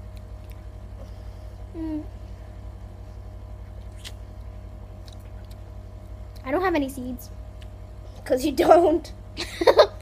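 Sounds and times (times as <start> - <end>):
steady low hum: 0.0 - 10.0
girl humming: 1.6 - 2.3
wet mouth click: 3.9 - 4.2.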